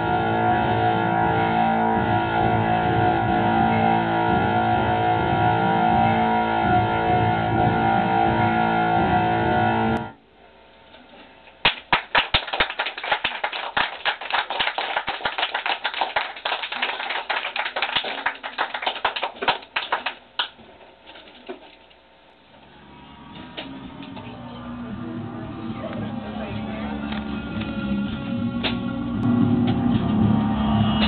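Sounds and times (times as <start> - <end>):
distorted noise drone: 0.0 - 10.6, 22.2 - 31.0.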